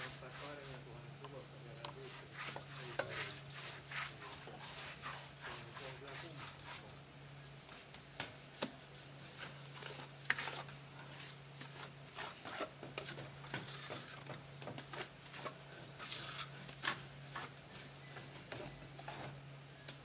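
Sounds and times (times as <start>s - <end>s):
trowel scraping mortar: 2.0s - 6.9s, 9.9s - 14.2s, 14.8s - 17.6s.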